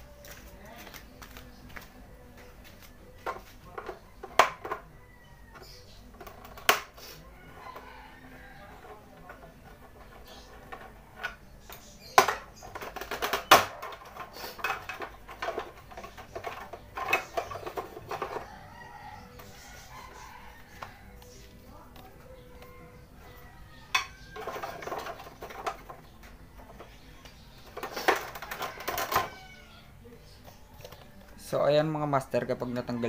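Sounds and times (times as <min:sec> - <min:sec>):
hand tools clinking on metal: 0:08.8 - 0:18.5.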